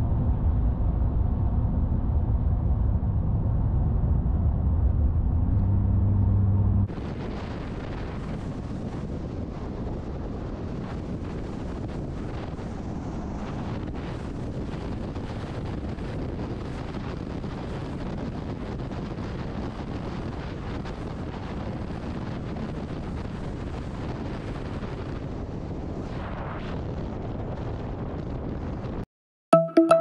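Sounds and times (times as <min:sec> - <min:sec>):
wind noise on microphone: 0:00.0 - 0:29.0
car road noise: 0:00.1 - 0:08.5.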